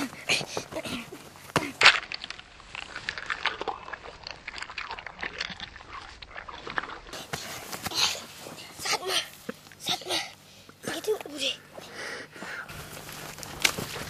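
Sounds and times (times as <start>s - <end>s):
fruit rind crunching and tearing: 1.7s - 7.1s.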